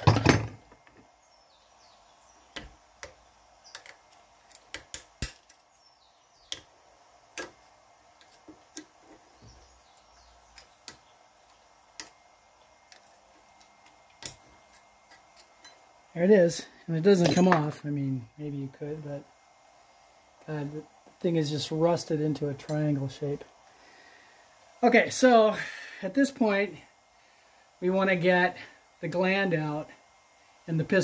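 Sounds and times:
metal tools clicking and tapping: 2.6s - 5.6s, 12.9s - 15.9s, 17.2s - 17.7s.

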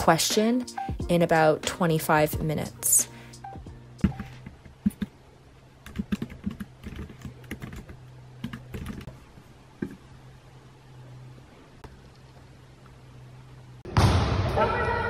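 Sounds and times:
steady low hum: 0.0s - 14.2s
laptop keyboard typing: 4.0s - 5.2s, 5.8s - 9.1s.

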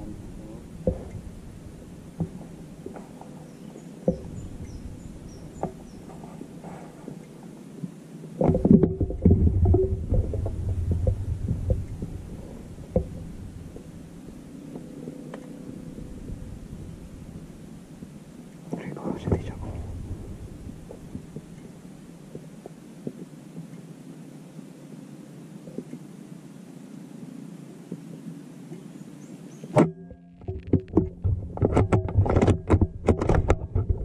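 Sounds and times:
low rumbling and rustling: 0.0s - 34.0s
faint high bird chirps: 3.3s - 6.1s
sharp clicks and knocks: 12.9s - 13.9s, 29.7s - 34.0s.

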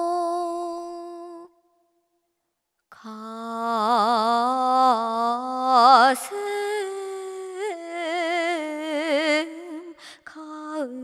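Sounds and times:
woman singing slow melody: 0.0s - 1.6s, 2.9s - 11.0s.

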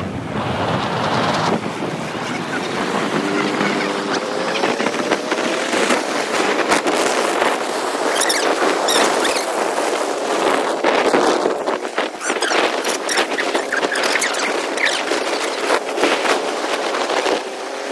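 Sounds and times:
wind rushing over microphone: 0.0s - 17.9s
short high squeaks: 8.0s - 9.5s, 12.2s - 15.6s.

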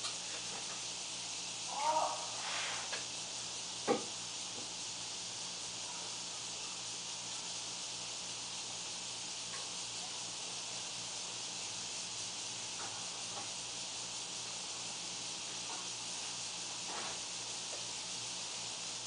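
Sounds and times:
steady background hiss: 0.0s - 19.0s.

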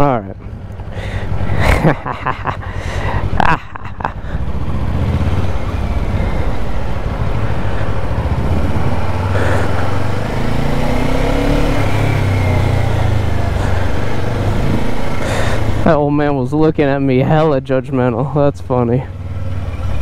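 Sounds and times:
motorcycle engine running: 0.3s - 20.0s
steady rushing noise: 0.6s - 16.2s.

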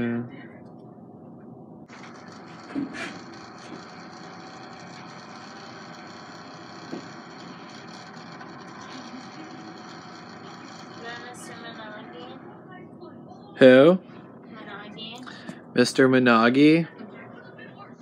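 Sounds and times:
small pump motor whirring: 1.9s - 12.4s.

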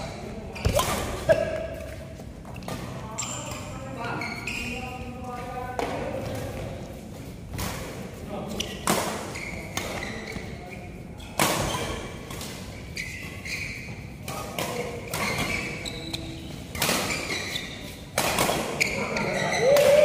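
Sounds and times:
rackets hitting shuttlecock: 0.5s - 2.0s, 18.1s - 18.9s
short high squeaks: 3.1s - 5.0s, 12.8s - 14.1s.

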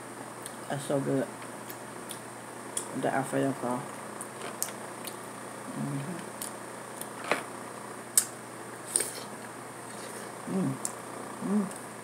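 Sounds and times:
person humming: 5.7s - 6.3s, 10.4s - 11.8s.

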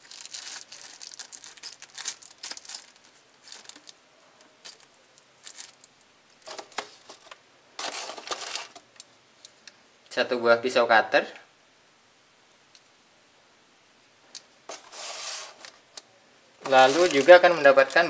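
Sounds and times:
plastic bag crinkling: 0.0s - 4.0s, 4.6s - 8.8s, 16.6s - 18.0s.

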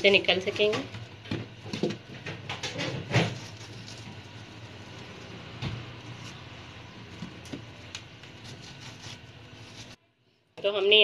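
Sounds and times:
knife cutting watermelon: 2.8s - 4.3s, 5.0s - 10.0s.

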